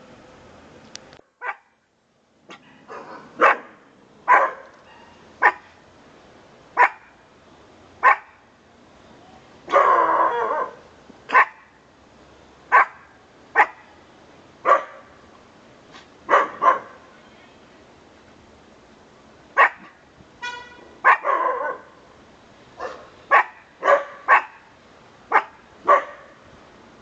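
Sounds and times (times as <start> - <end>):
dog barking: 1.4 - 1.8, 2.6 - 5.7, 6.8 - 7.1, 8.0 - 8.4, 9.7 - 11.8, 12.7 - 13.9, 14.7 - 15.1, 16.3 - 17.0, 19.6 - 20.0, 21.0 - 21.9, 22.8 - 24.7, 25.3 - 26.4.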